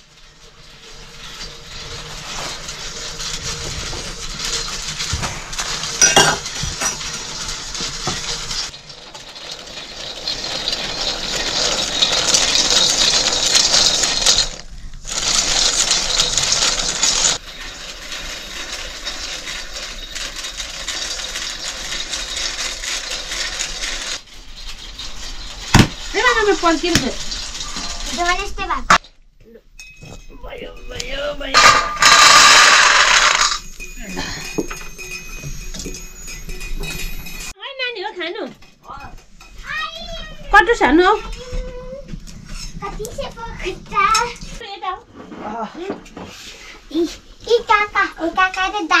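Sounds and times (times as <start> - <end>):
acorns rattling in metal pan: 0.0 - 29.0, 31.1 - 37.6.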